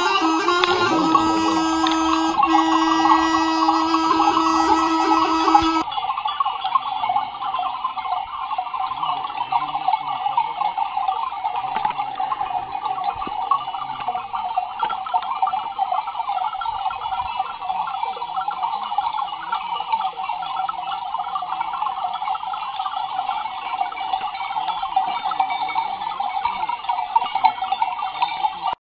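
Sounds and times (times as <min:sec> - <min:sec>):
sheep bleating: 0:00.0 - 0:05.8
neck bells jangling: 0:00.0 - 0:28.8.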